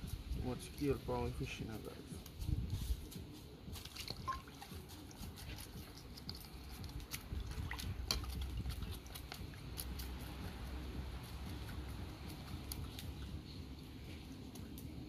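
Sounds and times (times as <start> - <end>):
water splashing in a metal pot: 3.9 - 4.7, 5.9 - 10.4.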